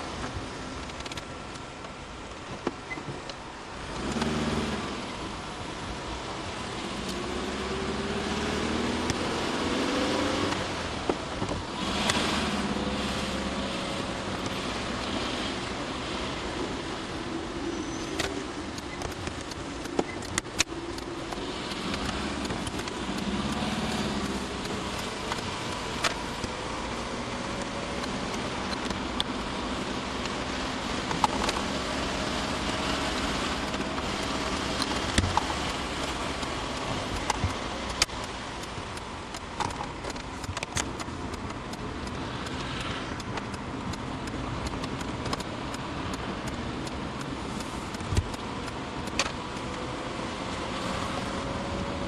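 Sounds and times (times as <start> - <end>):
road noise inside car: 0.0 - 52.0
car engine accelerating: 3.8 - 17.1, 18.6 - 39.2
sharp clicks: 18.1 - 31.9, 33.4 - 49.8.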